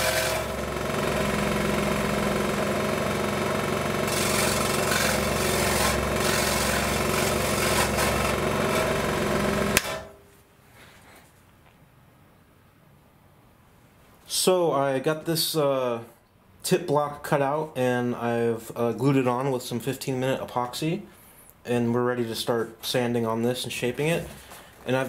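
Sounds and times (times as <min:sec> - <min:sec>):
scroll saw cutting wood: 0:00.0 - 0:10.2.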